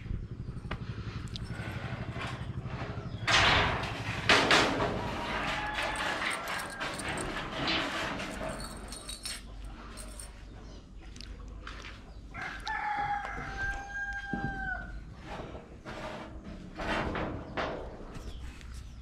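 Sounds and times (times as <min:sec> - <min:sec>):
rooster crowing: 0:05.2 - 0:07.4, 0:12.3 - 0:15.0.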